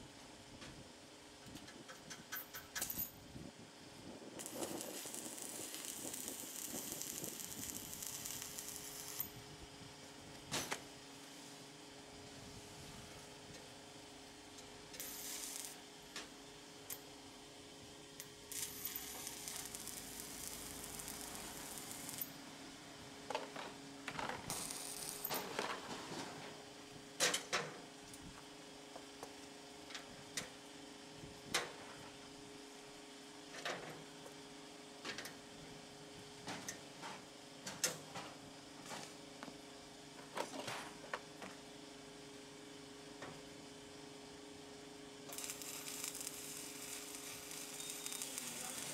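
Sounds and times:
steady hum: 3.2 - 25.4, 43.7 - 48.9
welding arc crackling: 4.3 - 9.5, 14.9 - 15.9, 18.3 - 22.4, 24.5 - 25.4, 45.3 - 48.9.

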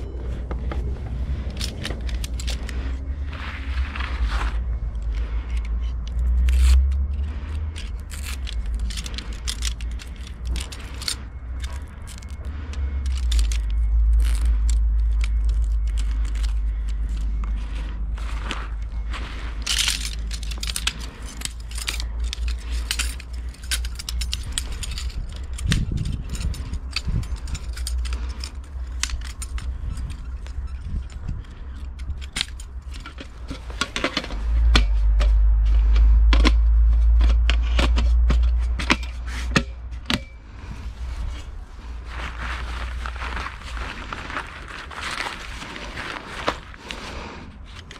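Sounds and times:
low rumble: 0.0 - 47.9
metal camping gear clinking: 0.0 - 47.9.

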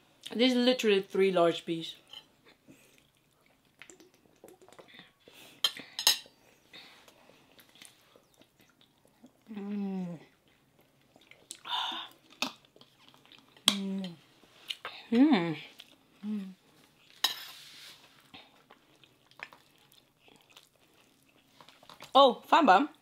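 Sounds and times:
soft chewing: 2.0 - 22.2
person humming: 9.5 - 10.2, 13.7 - 14.2, 16.2 - 16.6.

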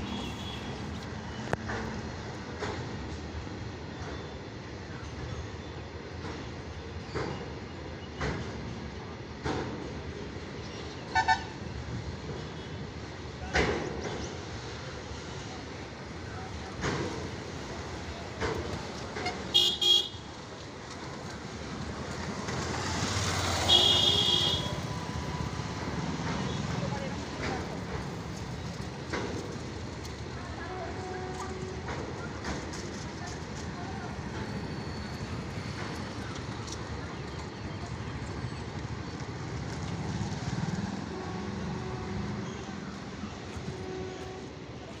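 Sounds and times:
freight train rumbling over bridge: 0.0 - 45.0
vehicle horn honking: 19.3 - 20.3, 23.6 - 24.8.

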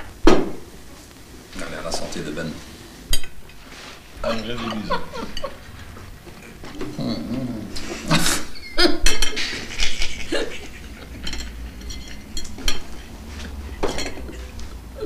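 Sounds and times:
forks clinking on plates: 4.2 - 5.6, 9.0 - 14.8.

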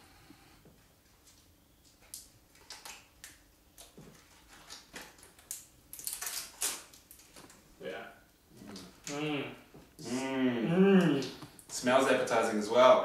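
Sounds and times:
plastic packets crinkling: 4.1 - 7.6.

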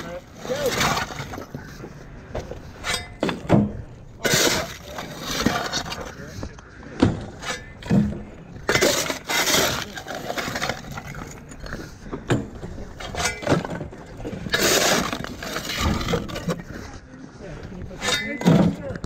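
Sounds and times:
debris breaking and clattering: 7.0 - 11.6, 12.3 - 16.7.

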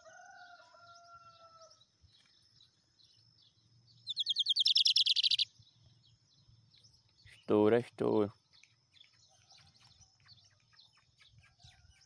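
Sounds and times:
bird trilling: 4.1 - 5.5.

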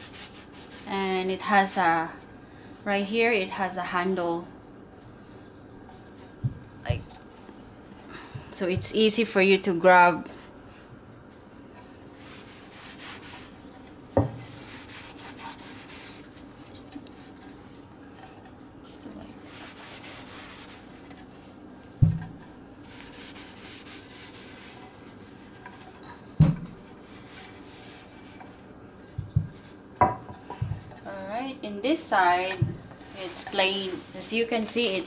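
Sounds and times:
cloth rubbing on wooden board: 0.0 - 1.2, 12.2 - 13.7, 14.4 - 17.5, 19.4 - 21.5, 22.8 - 25.7, 27.0 - 28.6, 32.2 - 35.0
board knocking on counter: 14.2 - 14.4, 22.0 - 22.4, 26.4 - 26.7, 29.2 - 30.8.

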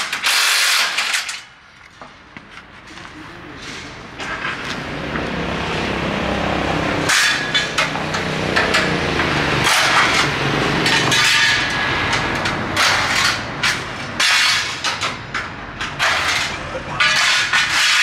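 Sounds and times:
metal knocks and clanks: 7.0 - 18.0.

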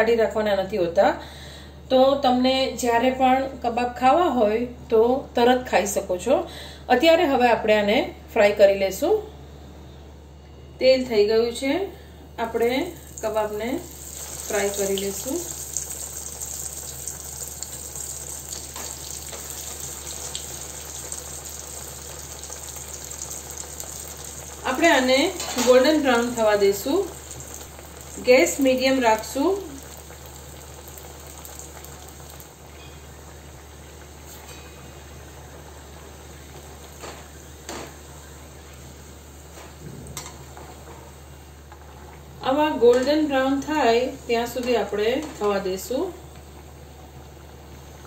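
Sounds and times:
oil sizzling and bubbling: 12.2 - 48.0
spoon turning frying food: 12.5 - 34.7.

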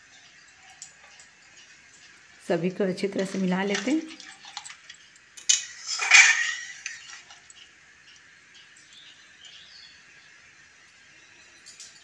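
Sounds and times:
faint bird chirps: 8.1 - 11.7.

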